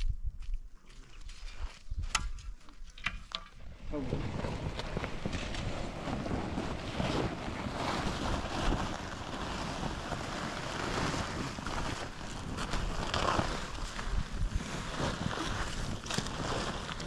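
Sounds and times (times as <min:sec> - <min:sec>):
wind buffeting microphone: 0:03.6 - 0:17.0
plastic tarp rustling: 0:04.0 - 0:17.0.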